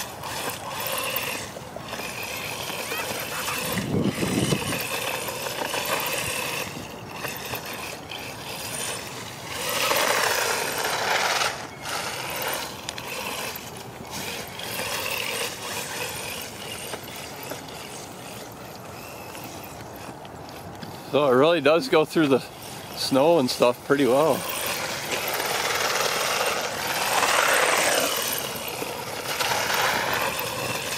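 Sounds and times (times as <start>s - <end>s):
rc truck electric motor whine: 0.0s - 30.9s
tyres running through snow: 0.0s - 30.9s.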